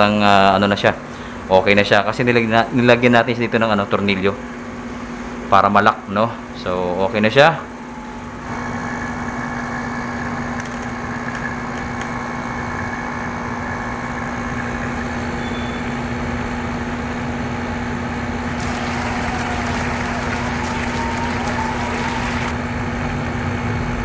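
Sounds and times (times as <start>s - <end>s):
air conditioner fan humming: 0.0s - 22.8s
airy rush: 18.6s - 22.6s.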